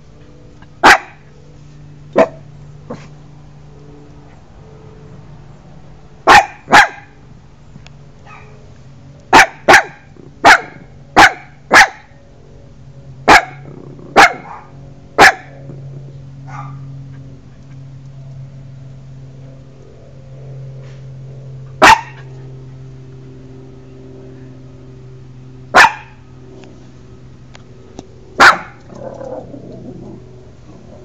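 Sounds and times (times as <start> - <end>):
puppy barking: 0.8 - 1.3, 2.2 - 3.1, 6.3 - 7.2, 8.2 - 8.6, 9.3 - 12.2, 13.3 - 15.6, 16.5 - 16.9, 21.8 - 22.3, 25.7 - 26.2, 28.4 - 28.9.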